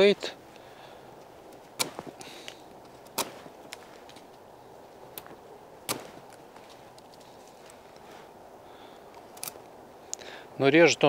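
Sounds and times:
wood cracking sharply: 1.5 - 4.4, 5.1 - 7.2.

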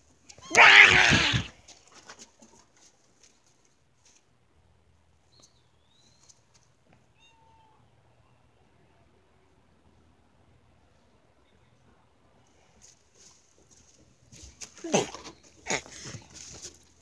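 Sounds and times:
cat meowing harshly: 0.4 - 1.6.

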